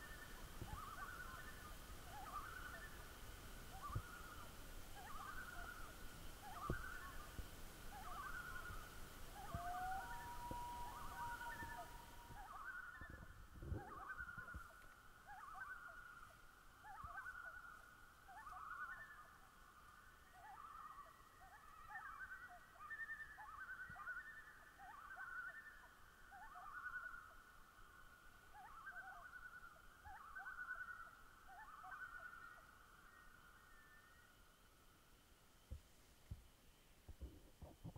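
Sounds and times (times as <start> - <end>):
trilled animal calls: 9.4 - 16.0.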